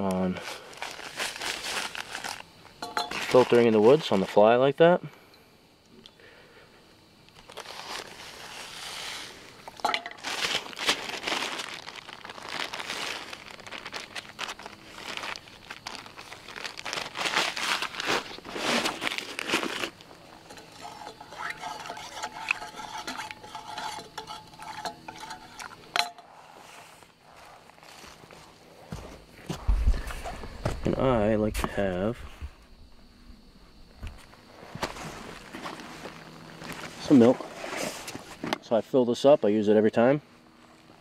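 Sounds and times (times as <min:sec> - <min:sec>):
plastic bag crinkling: 0:00.4 - 0:02.5, 0:07.4 - 0:23.6
clinks against metal: 0:02.8 - 0:03.3, 0:20.4 - 0:26.3
spoon stirring in metal mug: 0:20.4 - 0:26.2.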